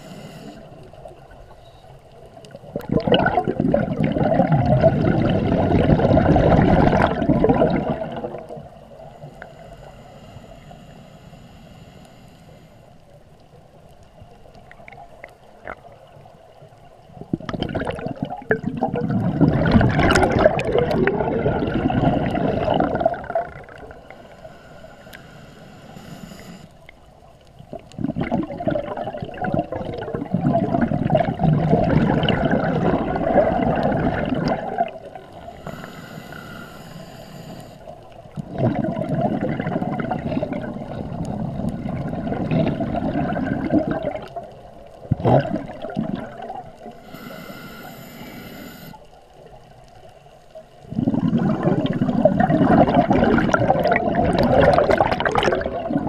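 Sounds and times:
hissing inhalation through regulator: 0:00.0 - 0:01.9, 0:07.7 - 0:13.2, 0:21.8 - 0:26.9, 0:33.3 - 0:38.4, 0:46.8 - 0:49.2
bubbling exhalations underwater: 0:02.6 - 0:08.7, 0:17.2 - 0:24.0, 0:27.7 - 0:35.2, 0:38.4 - 0:46.8, 0:50.8 - 0:56.0.

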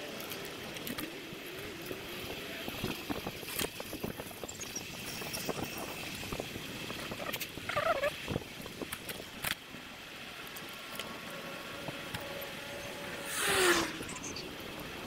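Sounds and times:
road and wind noise: 0:00.0 - 0:15.0
rushing swell with falling tone: 0:12.3 - 0:14.6.

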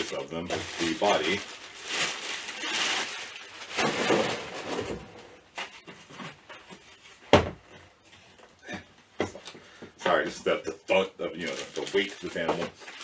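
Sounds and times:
plastic bag rustling: 0:00.0 - 0:05.5, 0:10.9 - 0:13.0.

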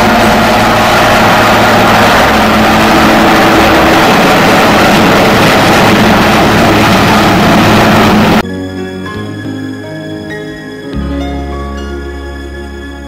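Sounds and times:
helicopter flying past: 0:00.0 - 0:08.4.

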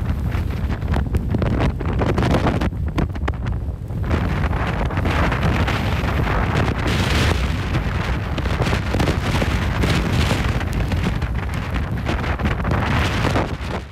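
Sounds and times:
strong wind buffeting microphone: 0:00.0 - 0:13.9.

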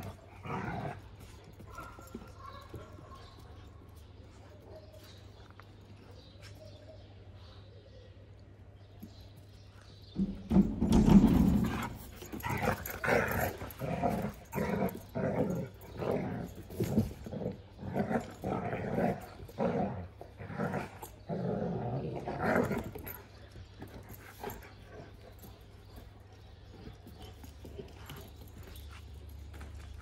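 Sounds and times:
dogs growling: 0:00.0 - 0:02.2, 0:11.3 - 0:29.0.

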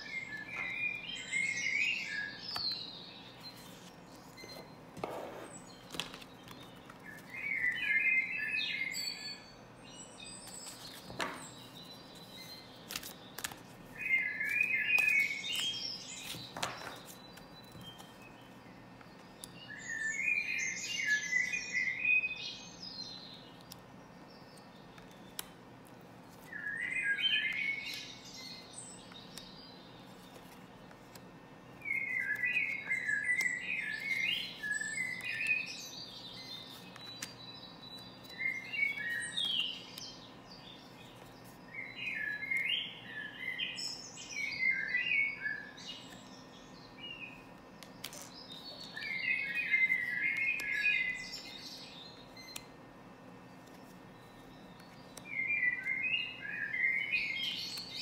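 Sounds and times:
songbird chirping: 0:00.0 - 0:58.0
cards clicking and tapping: 0:05.9 - 0:07.0, 0:10.6 - 0:11.6, 0:12.9 - 0:13.8, 0:14.5 - 0:18.2.

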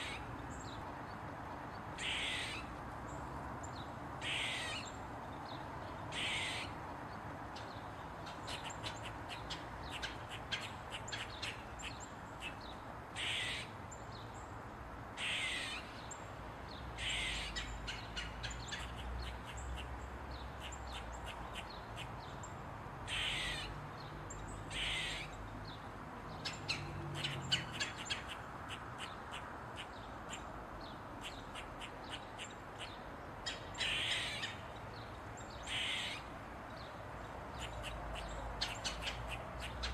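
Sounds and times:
squirrel barking: 0:02.0 - 0:02.6, 0:04.2 - 0:04.8, 0:06.1 - 0:06.7, 0:13.2 - 0:13.7, 0:17.0 - 0:19.9, 0:23.1 - 0:23.7, 0:24.7 - 0:25.3, 0:31.2 - 0:34.6, 0:35.7 - 0:36.3.

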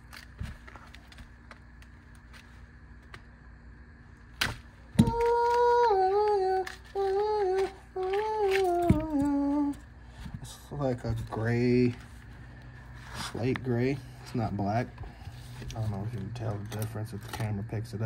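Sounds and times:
person humming a tune: 0:05.0 - 0:09.9.

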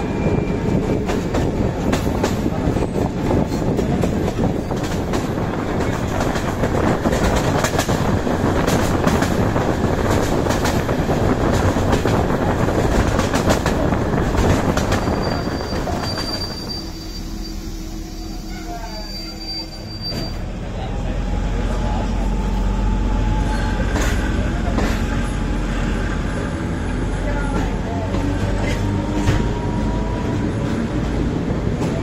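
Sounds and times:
train wheels rumbling and clicking: 0:00.0 - 0:17.8, 0:19.4 - 0:32.0
brake squeal: 0:15.0 - 0:20.5.

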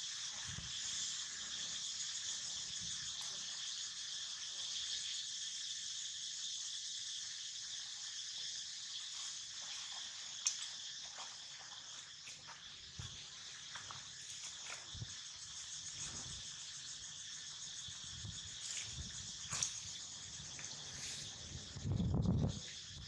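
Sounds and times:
high-pitched insect drone: 0:00.0 - 0:23.0.

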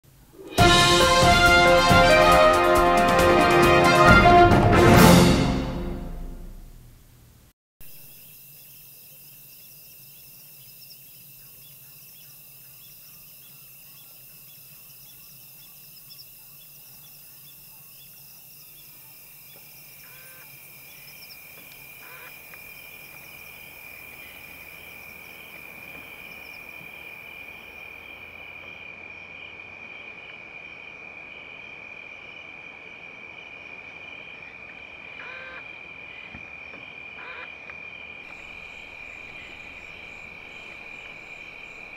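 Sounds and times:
insects trilling: 0:07.8 - 0:41.9
pulsing insect chirp: 0:07.8 - 0:41.9
loud high insect trill: 0:07.9 - 0:28.6, 0:38.3 - 0:41.9
short animal calls: 0:22.0 - 0:22.4, 0:35.2 - 0:35.7.

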